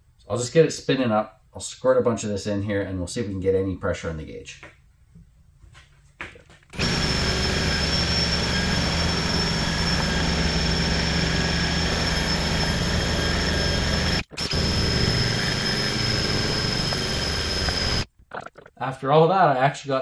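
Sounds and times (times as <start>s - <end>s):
drill spinning pump whine: 6.7s - 18.1s.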